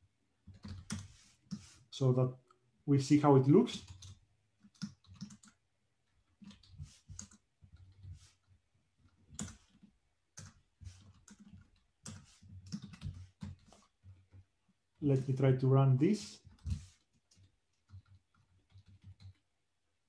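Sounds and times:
keyboard typing: 0.4s - 1.7s, 3.6s - 14.5s, 16.4s - 19.5s.

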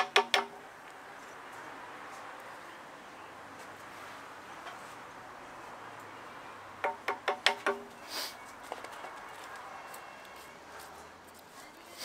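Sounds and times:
hammer strikes on metal: 0.0s - 0.6s, 6.8s - 7.9s.

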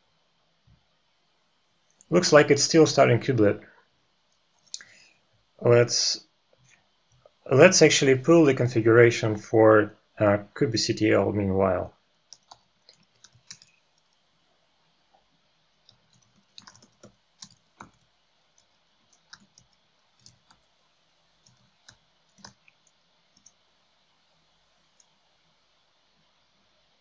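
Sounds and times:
computer keyboard typing: 12.3s - 14.1s, 15.8s - 20.7s, 21.4s - 23.6s.

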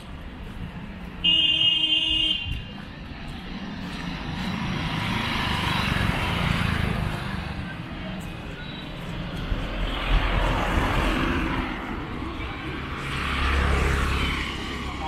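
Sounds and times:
passing vehicle engine and tyres: 0.0s - 15.0s
street traffic: 0.0s - 15.0s
vehicle horn: 1.2s - 2.6s.

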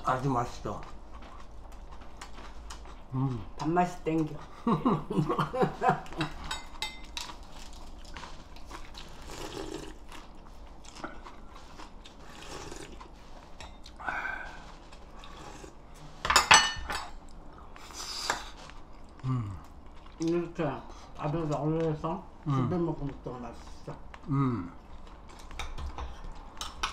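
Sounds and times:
chewing crisp leaves crunching: 0.0s - 16.0s, 17.2s - 26.7s
metal spoon clinking on dish: 6.2s - 7.2s.

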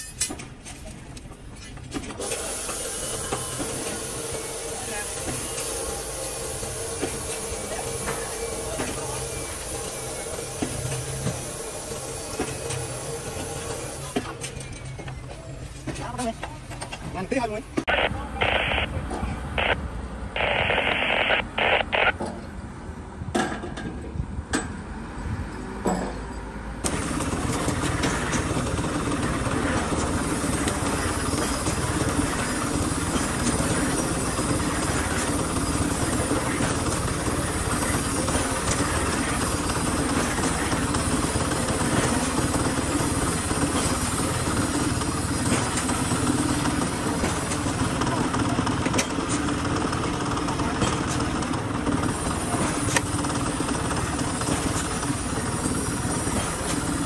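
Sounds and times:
short irregular sounds: 20.4s - 22.1s.

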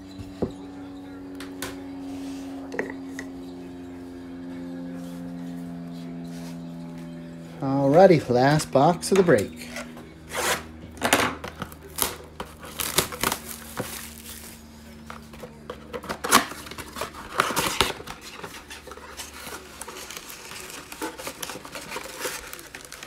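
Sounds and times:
shrink wrap crinkling and tearing: 11.5s - 23.0s.

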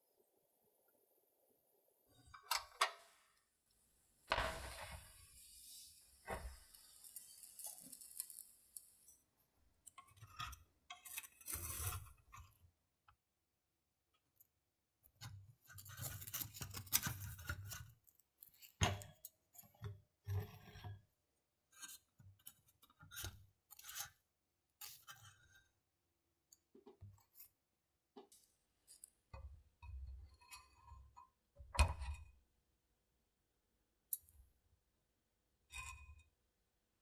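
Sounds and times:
crust scraping and crackling in mold: 6.3s - 12.7s, 15.1s - 21.1s.

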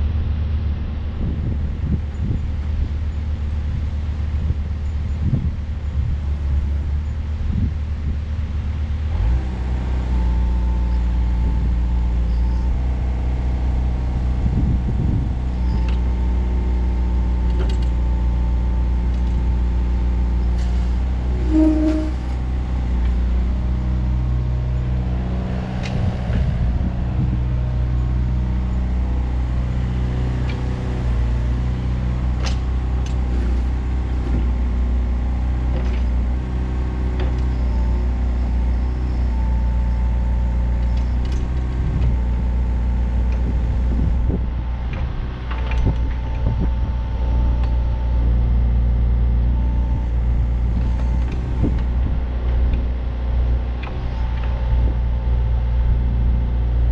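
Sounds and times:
excavator diesel engine running: 0.0s - 56.9s
brief tone: 12.2s - 12.8s, 21.4s - 22.4s.

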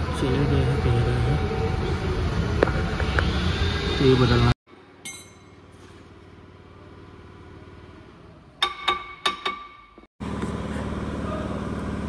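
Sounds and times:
loud mechanical hum: 0.0s - 9.6s, 10.2s - 12.0s
low workshop hum: 0.0s - 12.0s.

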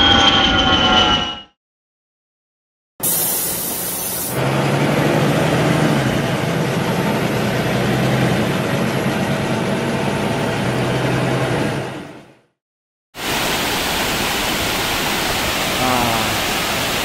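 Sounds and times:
waterfall roaring: 13.2s - 17.0s.

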